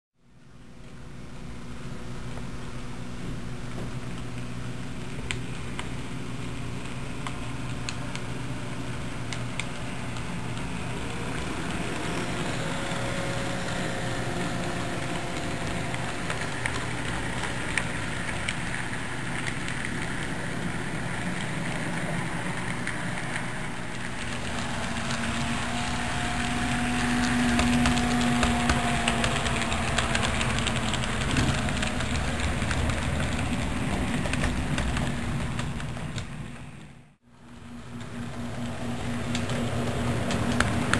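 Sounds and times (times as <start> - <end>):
model train humming: 7.3 - 36.7, 37.6 - 40.9
model train clicks: 9.1 - 36.9, 38.0 - 40.9.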